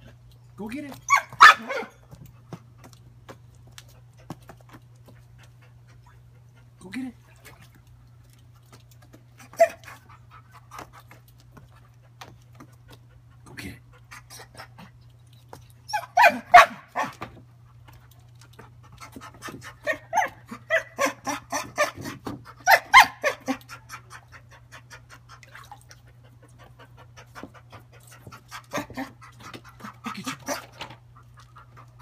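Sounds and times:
dog panting and whining: 1.0s - 6.8s, 8.7s - 32.0s.

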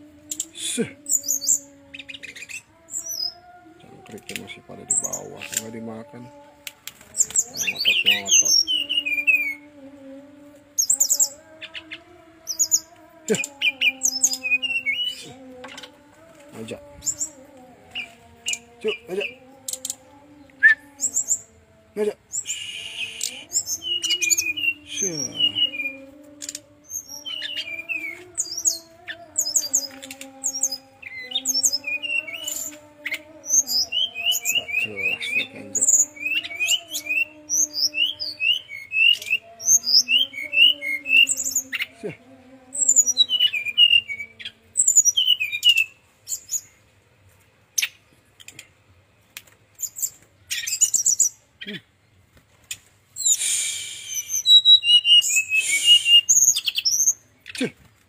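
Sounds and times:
bird singing chirps and whistles: 0.3s - 3.4s, 7.2s - 9.6s, 10.8s - 15.9s, 17.0s - 20.0s, 20.6s - 21.5s, 22.3s - 41.9s, 42.8s - 46.7s, 49.8s - 51.4s, 53.2s - 57.3s.

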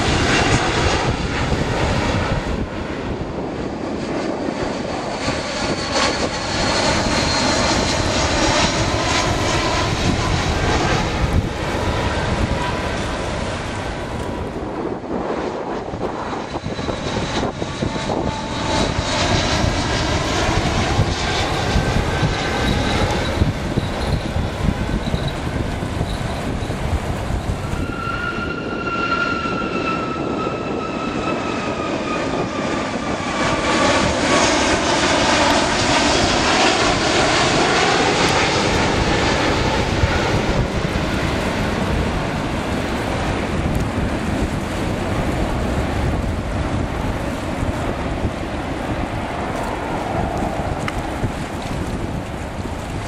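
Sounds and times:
jet engine whine falling in pitch: 0.0s - 53.0s
jet engines rumbling overhead: 0.0s - 53.0s.

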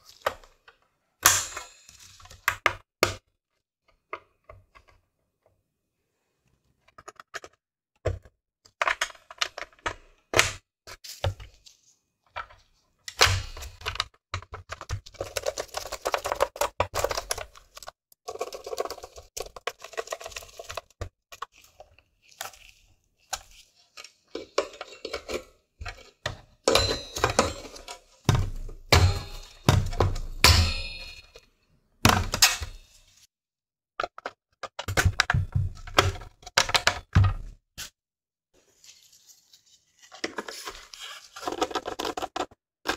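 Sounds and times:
plastic and metal parts clicking: 34.0s - 37.2s.

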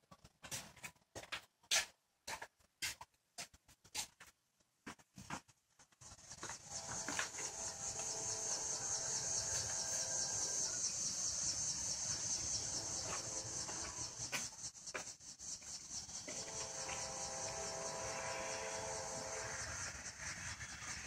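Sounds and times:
high-pitched insect chorus: 6.0s - 21.0s.

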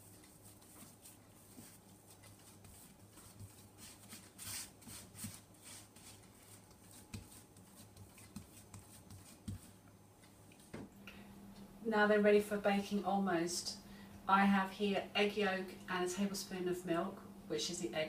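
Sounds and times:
hands patting dough: 0.0s - 9.9s.

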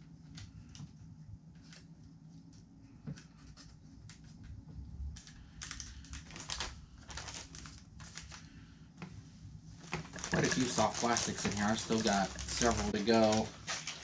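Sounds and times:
plastic packaging crinkling: 5.2s - 8.6s, 9.8s - 14.0s.

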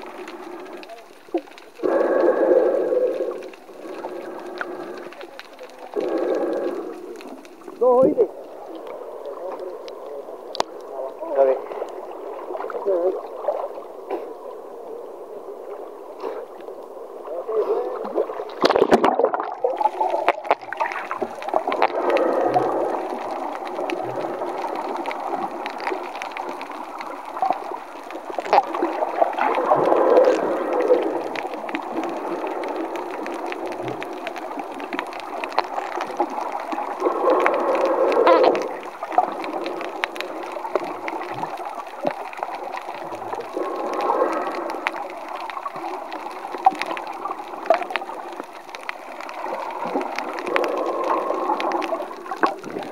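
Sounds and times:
muffled underwater rushing: 0.0s - 52.9s.

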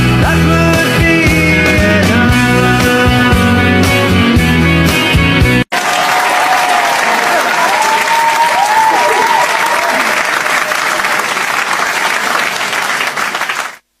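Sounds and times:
crowd applauding: 5.7s - 13.8s.

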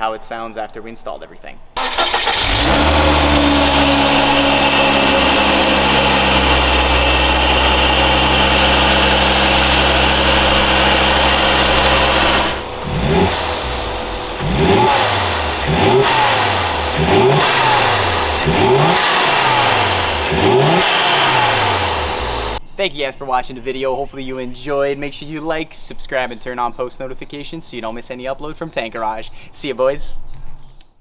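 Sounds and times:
car engine idling: 1.8s - 22.6s
engine revving in quick blips: 1.8s - 22.6s.

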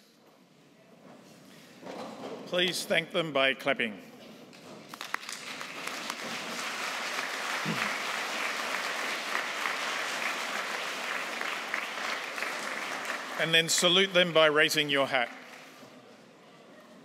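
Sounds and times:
large crowd applauding: 4.9s - 15.8s.

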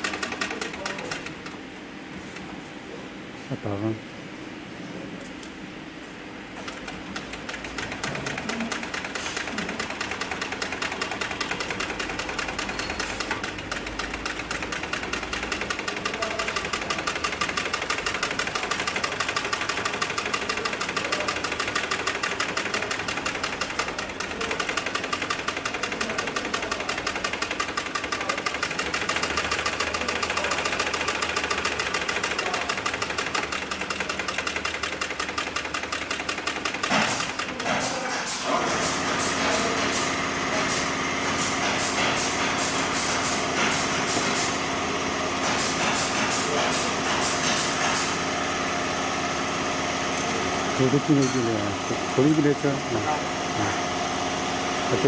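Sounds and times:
sewing machine needle clattering: 0.0s - 1.6s, 6.6s - 40.8s
table motor humming: 0.0s - 1.6s, 6.5s - 44.7s.

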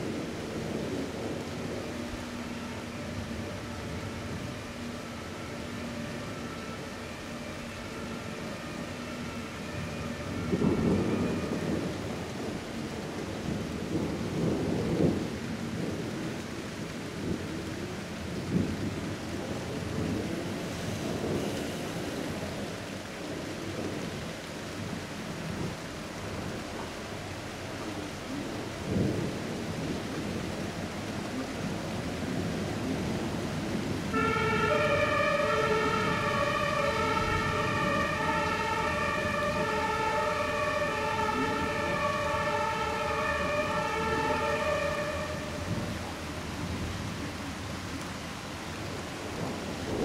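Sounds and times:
emergency vehicle siren: 0.0s - 13.5s, 33.5s - 46.4s
steady rain: 0.0s - 50.0s
low rumbling thunder: 7.9s - 48.0s, 48.7s - 50.0s.

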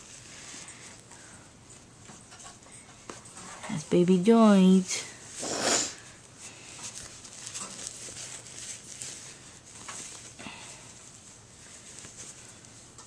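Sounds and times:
baby clothes rustling: 6.3s - 13.0s.

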